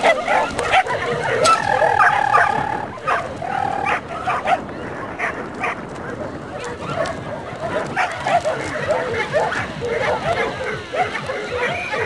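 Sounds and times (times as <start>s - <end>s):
dog crying: 0.0s - 4.0s
small dog barking and yipping: 0.0s - 5.8s, 6.6s - 12.0s.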